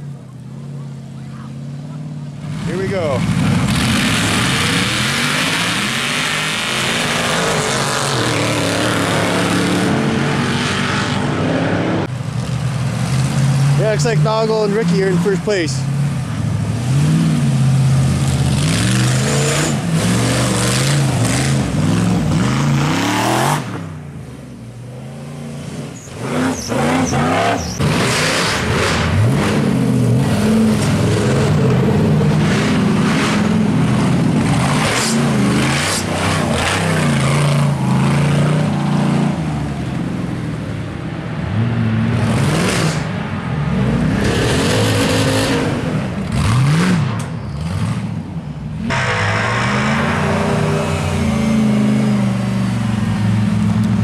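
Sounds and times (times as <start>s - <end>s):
buggy engines revving: 0.0s - 54.0s.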